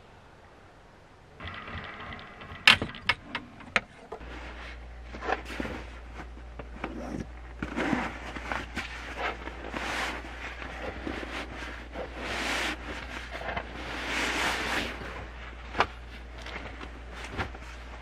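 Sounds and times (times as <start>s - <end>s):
low hum: 0.0s - 18.0s
nylon sleeping bag rustling: 7.0s - 18.0s.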